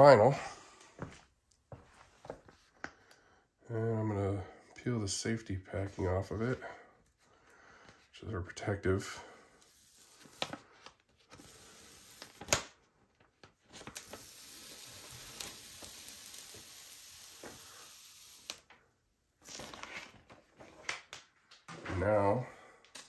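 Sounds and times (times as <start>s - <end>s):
backing paper peeling off: 9.6s - 12.7s, 13.7s - 18.6s
paper rustling: 9.7s - 12.6s, 13.2s - 17.9s, 19.4s - 21.0s.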